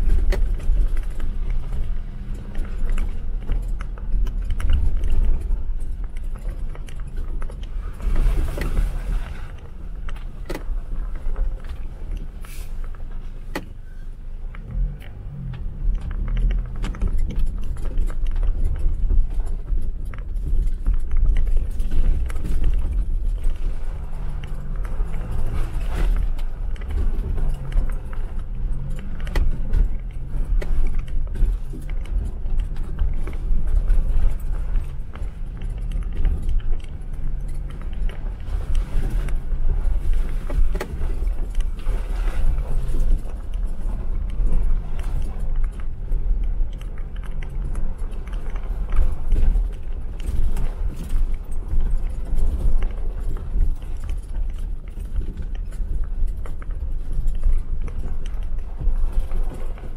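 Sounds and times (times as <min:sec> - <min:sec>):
low engine rumble: 0:00.0 - 0:59.9
rattling and jangling: 0:14.8 - 0:59.9.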